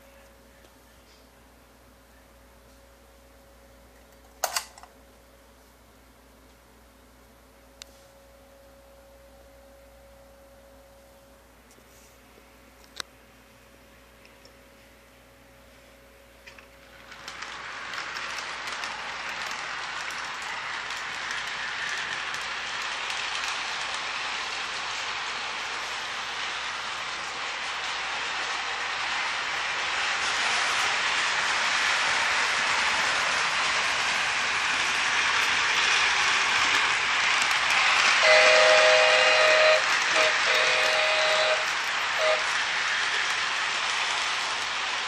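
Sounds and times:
model train rattling on track: 16.4 - 45.0.

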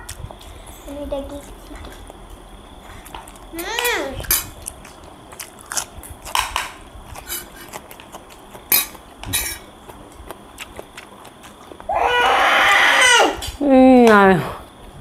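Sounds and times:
spoons clinking on plates: 8.7 - 9.7.

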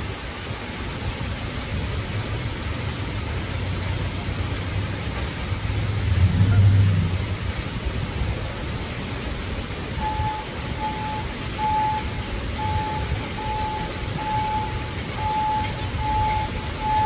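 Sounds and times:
heavy machinery engines rumbling: 2.2 - 17.0
backup alarm beeping: 10.0 - 17.0.

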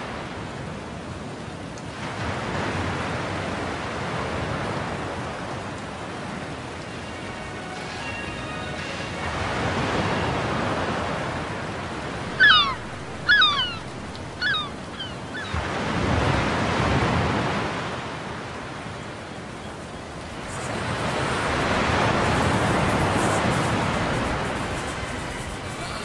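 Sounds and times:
surf washing in: 0.0 - 26.0
short falling calls: 12.3 - 15.5.

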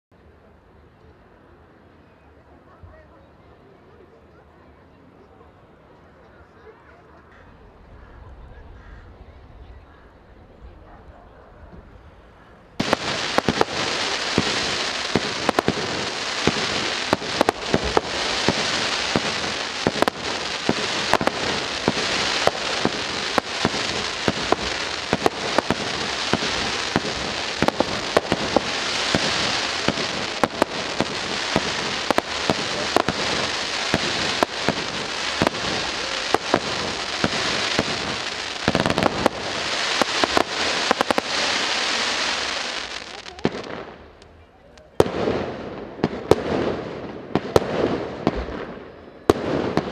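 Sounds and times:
fireworks crackling and banging: 12.8 - 49.9.

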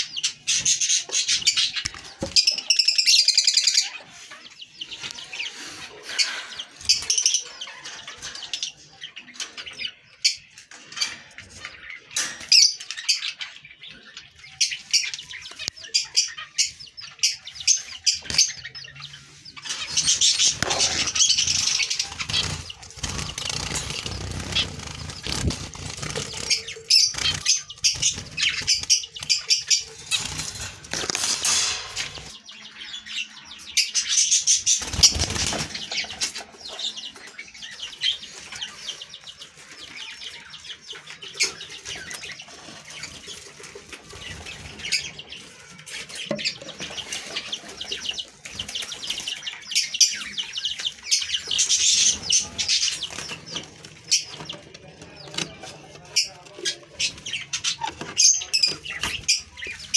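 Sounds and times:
small birds chirping: 0.0 - 59.9
wings flapping: 20.4 - 32.4, 34.7 - 36.4.

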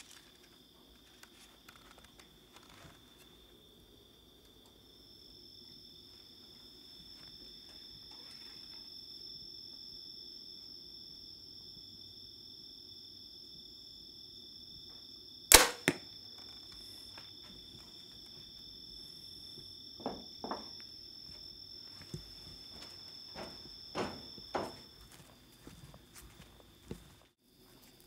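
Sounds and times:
arrow smack: 15.5 - 16.0
bow shot crack: 15.5 - 16.1
soft thumps: 22.0 - 24.9.

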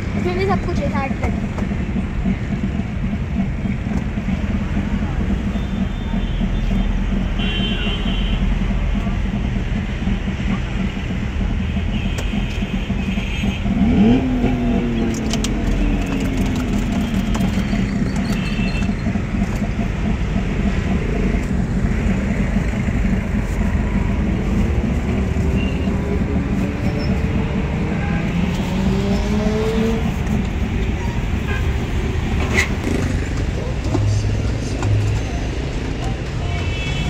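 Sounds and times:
traffic rumble: 0.0 - 37.0
engines revving past: 13.7 - 15.8, 26.3 - 30.5.

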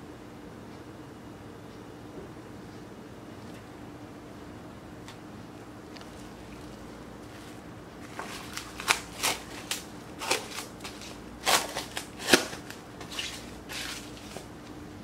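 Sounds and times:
cling wrap crinkling: 5.8 - 14.8.

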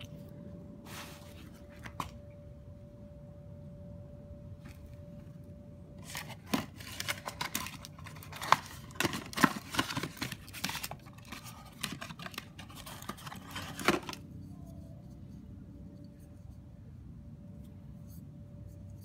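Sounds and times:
cardboard rustling and crackling: 6.0 - 14.2.

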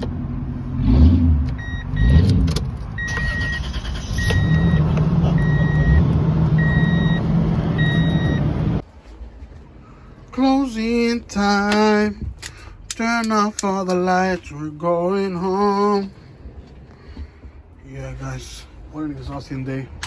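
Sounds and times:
engine revving and idling: 0.0 - 8.8
dashboard warning chime beeping: 1.6 - 2.2, 3.0 - 8.5.

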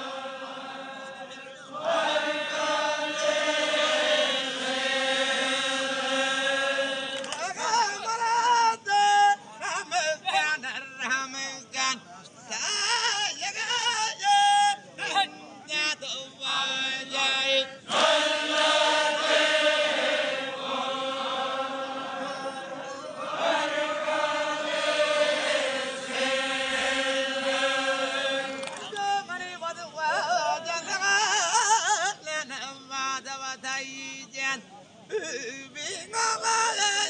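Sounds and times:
men chanting in unison: 0.0 - 34.6.

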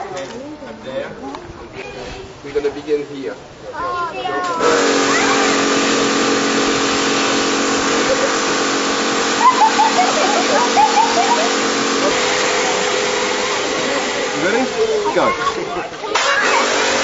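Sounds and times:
water jet hissing against wall: 4.5 - 17.0
pressure washer motor hum: 4.6 - 17.0.

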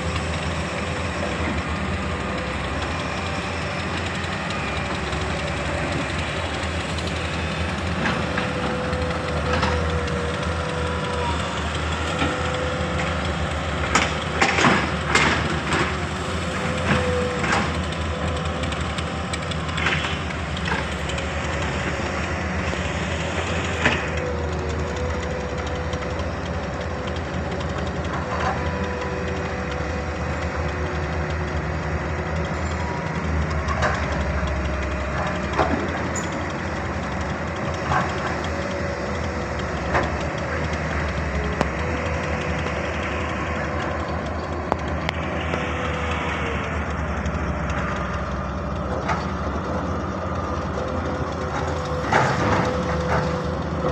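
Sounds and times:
diesel excavator engines running: 0.0 - 53.9.

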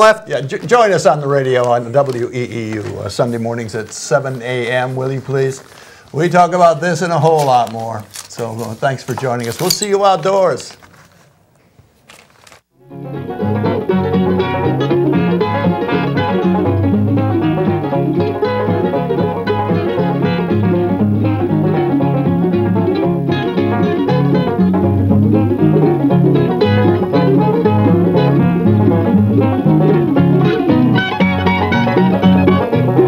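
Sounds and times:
bluegrass banjo and guitar music: 12.8 - 33.0.

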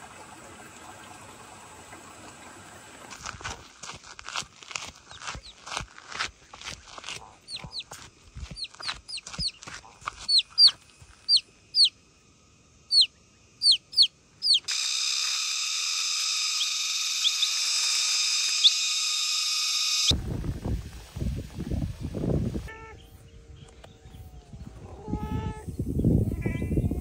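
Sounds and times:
gravel crunching underfoot: 3.1 - 11.5
chick peeping: 7.1 - 11.9, 12.9 - 14.7, 16.6 - 17.6
faint chirps: 8.5 - 12.0, 12.8 - 15.4
high buzzing drone: 12.9 - 21.4.

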